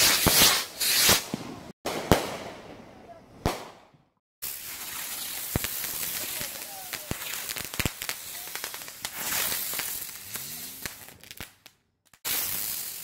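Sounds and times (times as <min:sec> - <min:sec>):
firework rushing hiss: 0:00.0 - 0:01.5, 0:04.4 - 0:13.0
firework pops and cracks: 0:00.0 - 0:02.5, 0:03.4 - 0:13.0.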